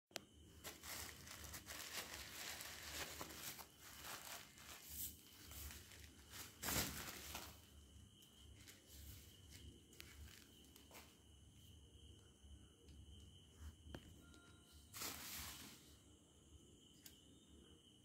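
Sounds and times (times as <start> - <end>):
bubble wrap rustling and crinkling: 0.5 - 7.7, 8.5 - 11.2, 14.9 - 15.8.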